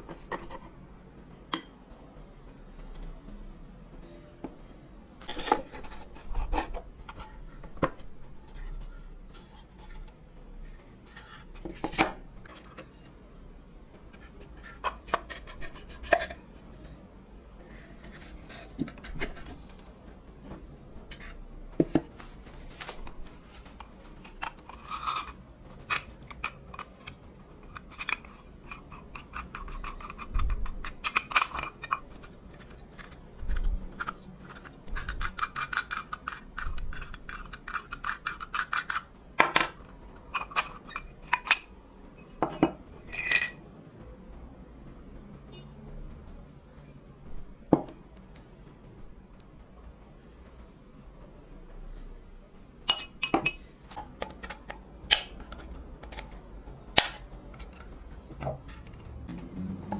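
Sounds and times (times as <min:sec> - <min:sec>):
metal parts clinking: 0:43.1 - 0:43.6.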